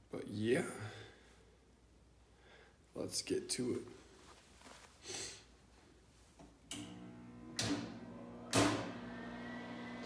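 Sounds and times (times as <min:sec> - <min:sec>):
welder electrical hum: 0:06.6 - 0:10.0.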